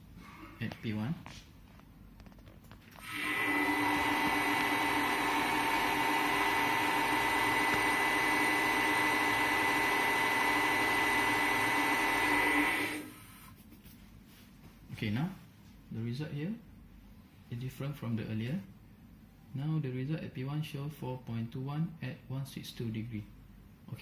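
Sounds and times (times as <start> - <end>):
balancing machine motor whine: 3.0 - 13.2.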